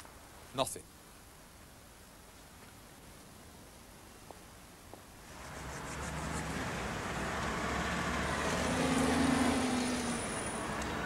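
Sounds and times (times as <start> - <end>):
vehicle engines rumbling: 5.2 - 11.0
held engine hum: 5.3 - 11.0.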